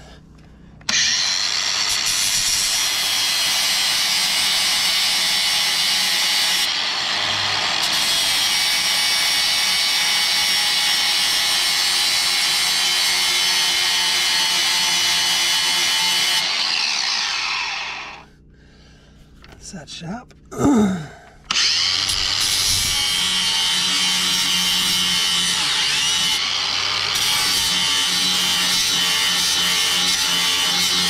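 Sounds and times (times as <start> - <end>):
grinder winding down whine: 0.9 - 5.2, 13.8 - 18.3, 21.5 - 31.0
angle grinder grinding metal blade: 0.9 - 18.3, 21.5 - 31.0.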